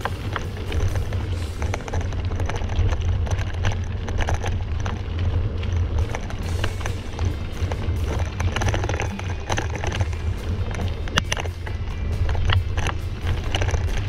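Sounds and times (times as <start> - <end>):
bicycle frame clicks and rattles: 0.0 - 14.0
bicycle rolling over gravel: 0.0 - 14.0
wind buffeting microphone: 0.0 - 14.0.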